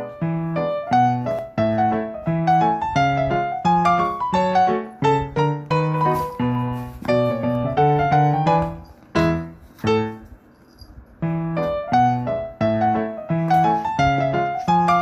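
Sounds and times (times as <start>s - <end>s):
bouncy piano music: 0.0s - 15.0s.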